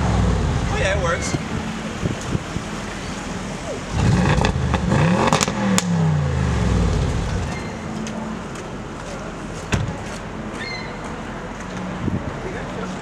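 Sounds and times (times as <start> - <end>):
car engine revving: 0.0 - 7.6
exhaust crackles: 0.0 - 7.6.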